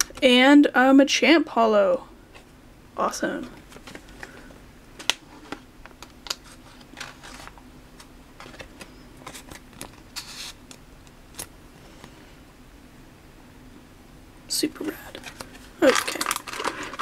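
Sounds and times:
trading cards sliding and flicking: 6.3s - 10.8s
foil wrapper tearing and crinkling: 15.3s - 17.0s.

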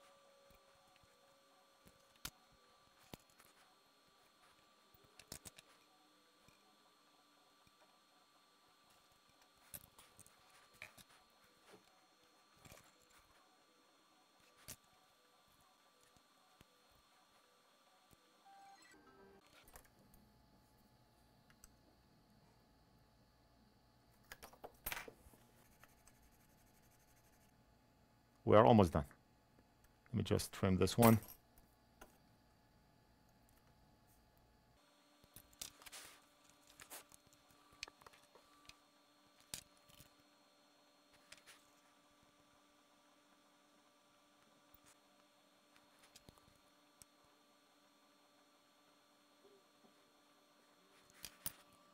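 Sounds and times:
faint electrical hum: 0.0s - 51.9s.

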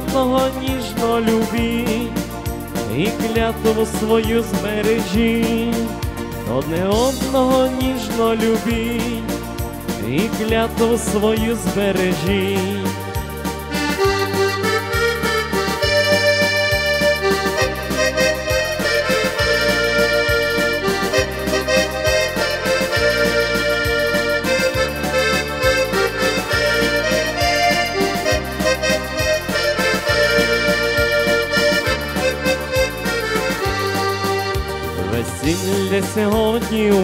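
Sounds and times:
accordion melody: 0.0s - 37.0s
steady bass beat: 0.0s - 37.0s.

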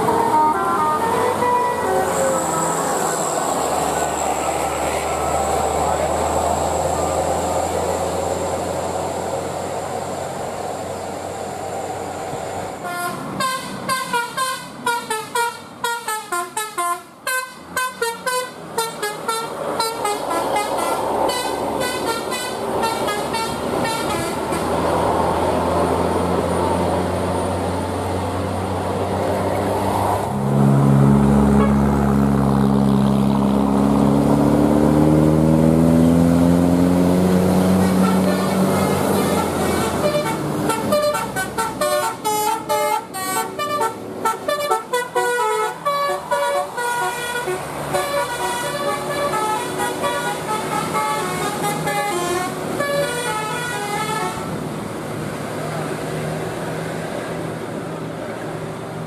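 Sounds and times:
musical bus horn melody: 0.0s - 3.3s, 12.8s - 24.8s, 31.5s - 32.0s, 37.7s - 54.6s
bus engine pulling away: 0.0s - 59.0s
bus engine rumble: 0.0s - 59.0s.

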